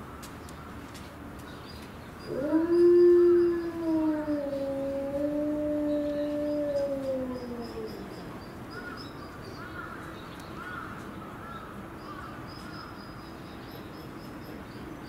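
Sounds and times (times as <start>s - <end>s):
wolf howling: 2.3s - 8.3s.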